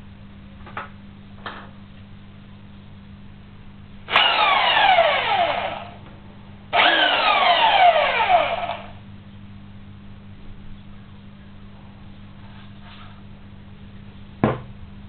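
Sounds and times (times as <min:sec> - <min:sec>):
belt sander spinning up and down: 0:04.1 - 0:06.0, 0:06.8 - 0:09.0.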